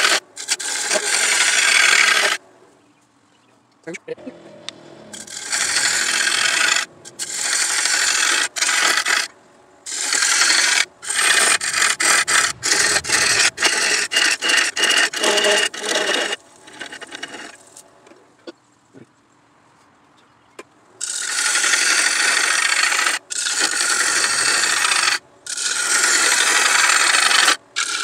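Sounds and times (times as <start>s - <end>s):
turning tool scraping wood on lathe: 0.0s - 2.4s, 5.1s - 17.6s, 21.0s - 28.0s.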